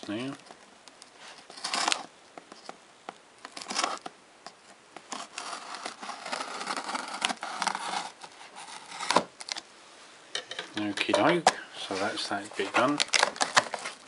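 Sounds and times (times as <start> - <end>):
scissors cutting packing tape: 1.5 - 2.1, 13.0 - 13.9.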